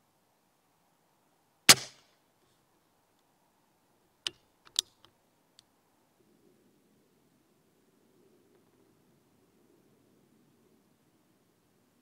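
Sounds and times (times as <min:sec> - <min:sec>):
air rifle shot: 0:01.7 - 0:02.0
rifle action clicks: 0:04.3 - 0:05.1.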